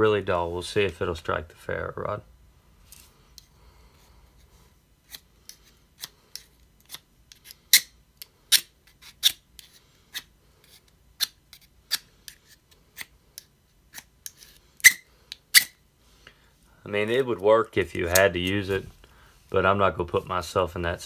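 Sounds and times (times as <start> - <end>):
knife scraping ferro rod: 5.0 - 7.9, 8.5 - 15.8.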